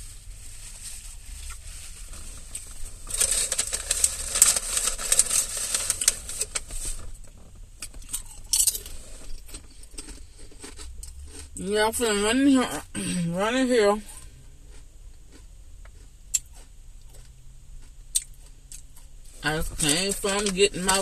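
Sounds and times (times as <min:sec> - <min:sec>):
salad crackling and rustling: 0:00.0 - 0:11.6.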